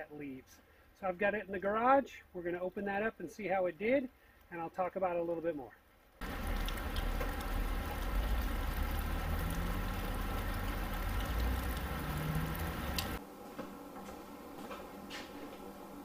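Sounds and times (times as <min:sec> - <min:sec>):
steady rain: 0:05.9 - 0:13.2.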